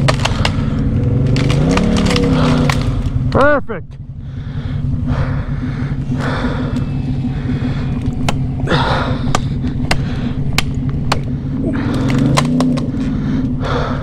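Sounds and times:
branches snapping: 0.0 - 3.4, 7.9 - 13.4
atv engine idling: 0.0 - 14.0
person breathing hard: 0.3 - 1.0, 4.1 - 14.0.

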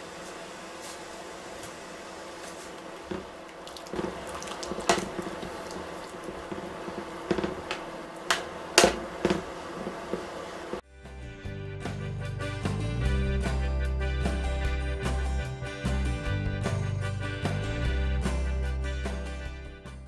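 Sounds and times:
water boiling in a pot: 0.0 - 10.8.

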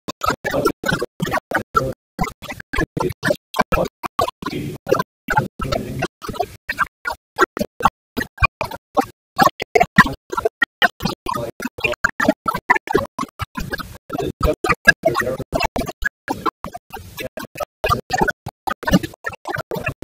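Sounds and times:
man's stuttering voice fragments: 0.1 - 20.0.

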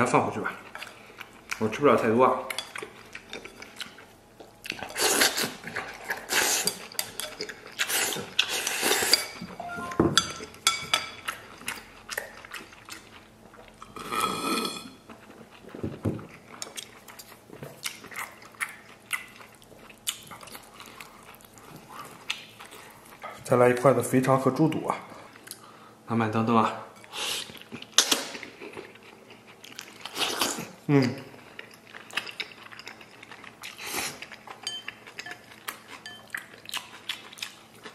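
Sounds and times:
person chewing wetly: 0.5 - 1.8, 2.5 - 9.5, 11.1 - 23.4, 27.4 - 30.8, 31.4 - 37.9.

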